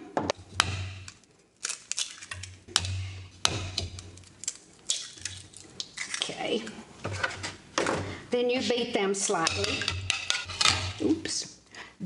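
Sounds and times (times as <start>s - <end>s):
eggs cracking on bowl edge: 0.3s - 6.4s.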